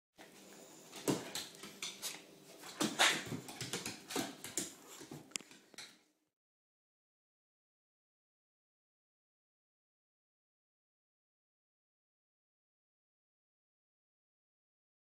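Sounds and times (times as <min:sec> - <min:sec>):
dog claws clicking on wooden floor: 0:01.0 - 0:06.0.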